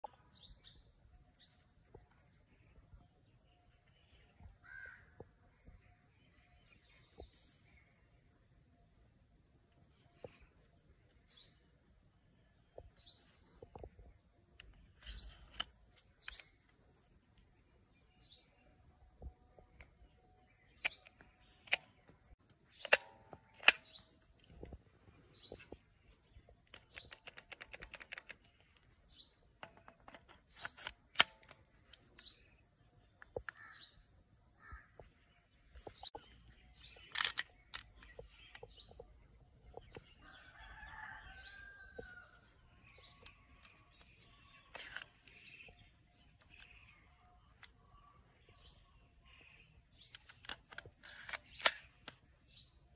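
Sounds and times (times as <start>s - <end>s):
bird chirping: 0.0s - 52.9s
rounds snapping into magazine: 14.6s - 16.8s, 20.8s - 24.6s, 26.7s - 28.9s, 29.6s - 32.5s, 36.9s - 38.6s, 50.0s - 52.2s
pistol handling clicks: 22.7s - 24.3s, 30.5s - 32.3s, 37.1s - 38.1s, 50.1s - 52.2s.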